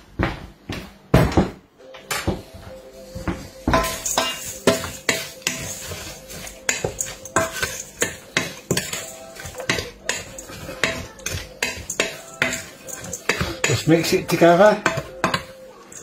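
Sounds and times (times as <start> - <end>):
spoon scraping steel bowl: 3.8 - 14.3.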